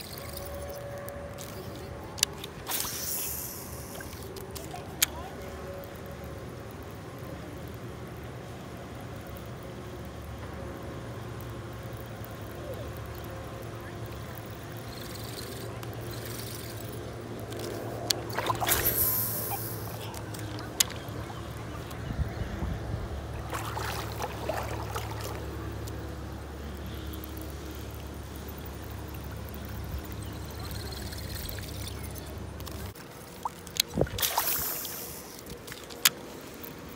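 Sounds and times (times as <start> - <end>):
water splashing and trickling: 0.0 - 6.1, 11.8 - 36.9
fishing rod clicks and knocks: 14.4 - 21.2, 30.6 - 34.6.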